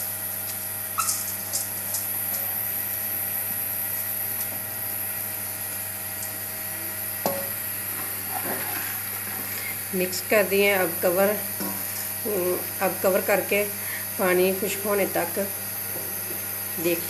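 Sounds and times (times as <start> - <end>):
steady hum: 0.0 - 17.0
water boiling: 0.0 - 17.0
spoon knocking against metal pot: 7.3 - 7.6.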